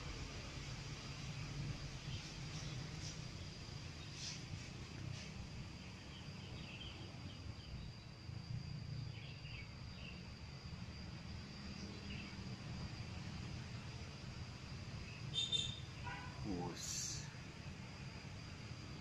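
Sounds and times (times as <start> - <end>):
constant low rumble: 0.0 - 19.0
high insect drone: 0.0 - 19.0
short bird-like chirps: 15.3 - 15.9.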